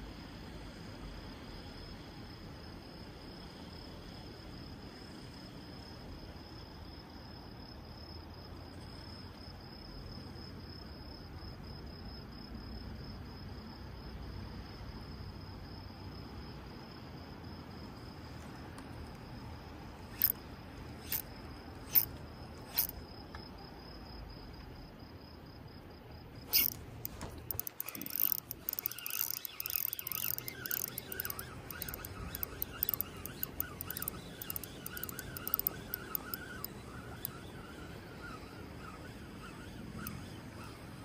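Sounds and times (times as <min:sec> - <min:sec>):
insects trilling: 0:19.3 - 0:24.4, 0:25.7 - 0:41.0
fishing reel clicking: 0:20.1 - 0:20.4, 0:21.0 - 0:21.3, 0:21.9 - 0:22.1, 0:22.7 - 0:23.0, 0:26.5 - 0:37.7.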